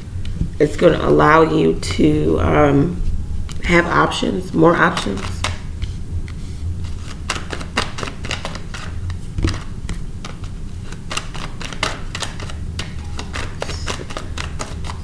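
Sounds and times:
low steady hum: 0.0 - 15.0
cards being shuffled: 4.7 - 15.0.

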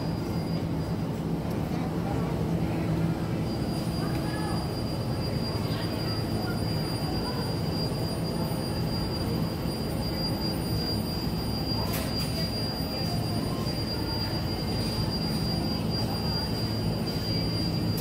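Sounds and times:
high-pitched whine: 0.0 - 18.0
refrigerator hum: 0.0 - 18.0.

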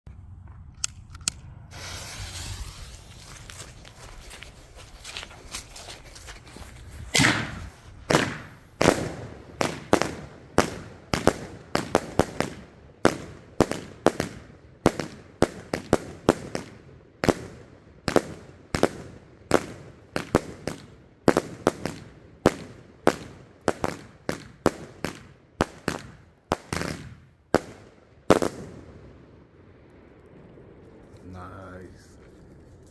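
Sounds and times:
firework cake launch pops and bangs: 1.7 - 3.4, 7.1 - 29.0.

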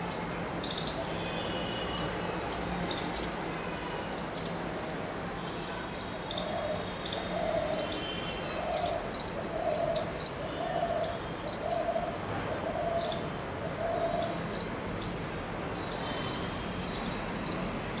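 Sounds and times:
dove cooing: 6.4 - 14.4.

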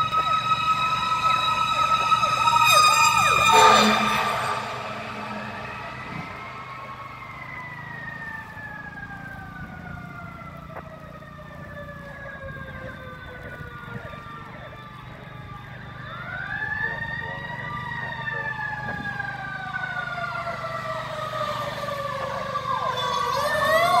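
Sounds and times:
fire truck siren wailing: 0.0 - 24.0
truck engine rumble: 0.0 - 24.0.

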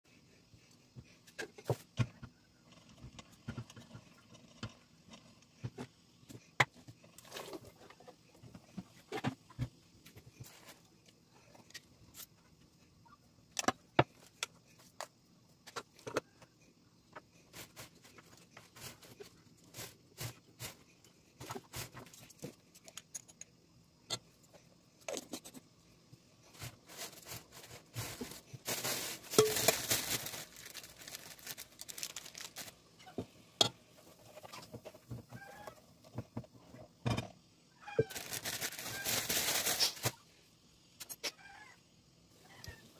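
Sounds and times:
rustling scraping noise: 26.4 - 32.8, 38.0 - 40.2.

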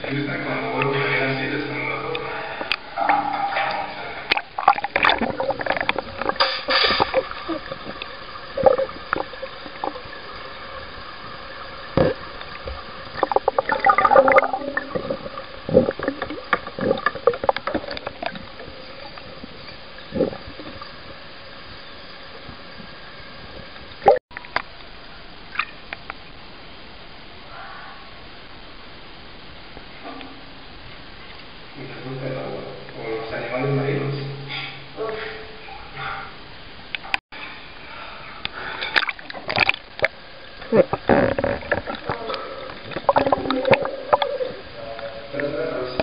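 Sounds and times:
underwater gurgling and bubbling: 1.6 - 24.2, 38.9 - 46.0.

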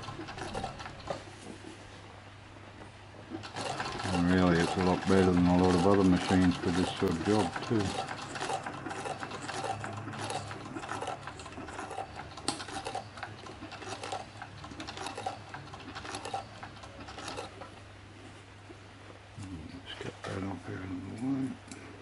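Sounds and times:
sewing machine needle strokes: 0.0 - 1.2, 3.3 - 17.8
sewing machine motor hum: 0.0 - 1.5, 3.3 - 17.9.

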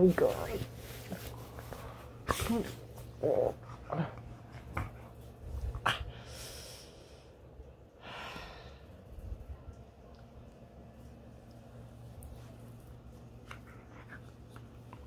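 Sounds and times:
dog breathing and snuffling: 0.2 - 6.8.

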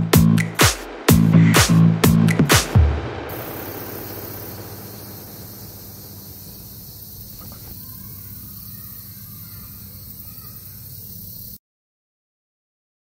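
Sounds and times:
low hum: 0.0 - 10.0
insects hissing: 3.2 - 11.6
faint bird calls: 3.3 - 11.6.

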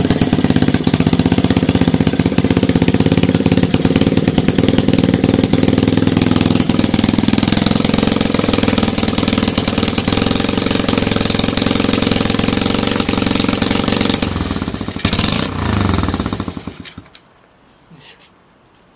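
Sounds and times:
motorcycle engine idling and revving: 0.0 - 17.2.

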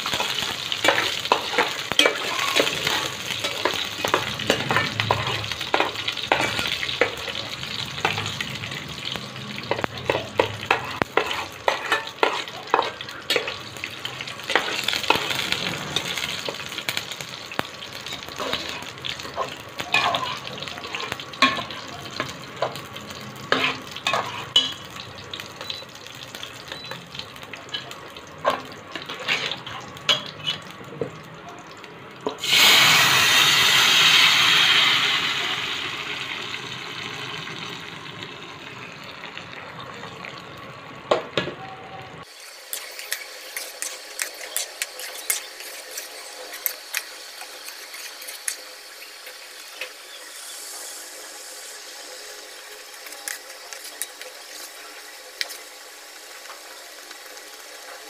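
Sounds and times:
spices crackling in hot oil: 0.0 - 41.4, 42.2 - 58.0
dal sizzling with loud hiss: 32.4 - 36.0, 42.2 - 56.6.

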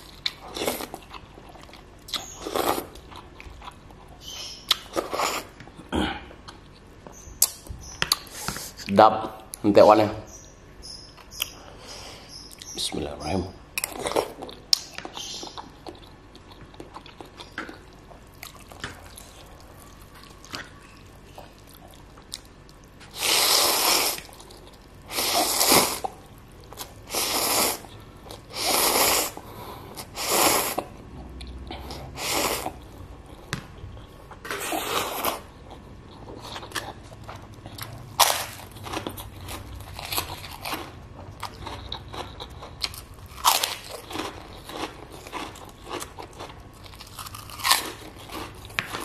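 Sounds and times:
soft chewing: 0.0 - 9.6, 13.8 - 23.2, 24.1 - 49.0
loud noodle slurps: 23.2 - 24.3, 28.5 - 29.4.

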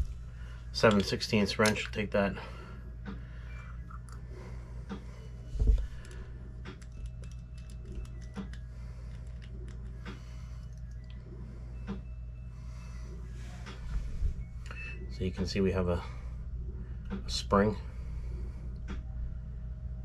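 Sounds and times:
low steady hum: 0.0 - 20.0
metallic clicks of wrench and parts: 0.8 - 2.0.

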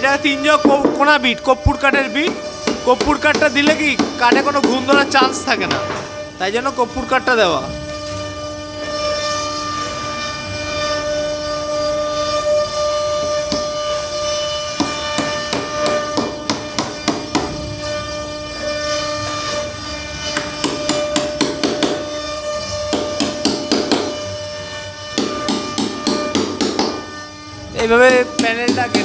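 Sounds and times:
hammer tapping nail punch: 20.4 - 22.0, 22.9 - 24.1, 25.2 - 27.0.

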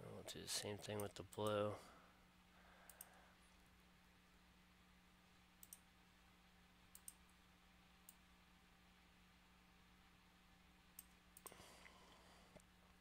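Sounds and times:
faint steady hum: 0.0 - 13.0
computer mouse clicking: 2.9 - 3.2, 5.6 - 5.9, 6.9 - 7.2, 11.0 - 11.6.

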